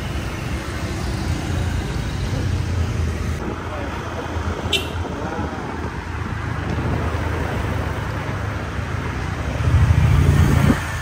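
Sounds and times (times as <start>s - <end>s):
road noise: 0.0s - 11.0s
wind noise: 3.2s - 8.2s, 9.6s - 11.0s.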